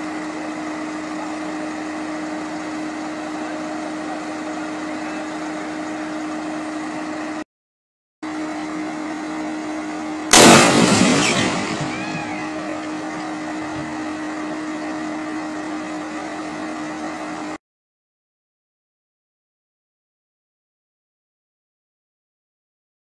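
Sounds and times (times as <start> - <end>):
power line humming: 8.3 - 17.6
loud electrical bang: 10.3 - 13.2.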